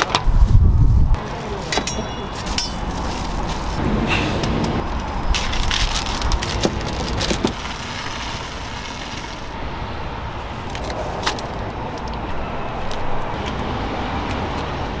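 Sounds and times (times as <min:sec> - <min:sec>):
passing traffic: 0:00.0 - 0:15.0.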